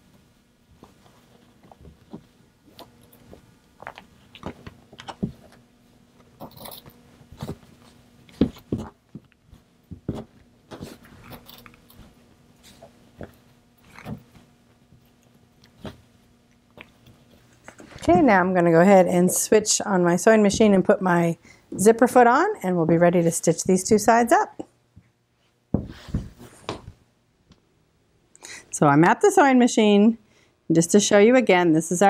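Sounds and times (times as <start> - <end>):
faint steady hum: 0.0 - 32.0
canvas rustling and sliding: 25.8 - 26.8.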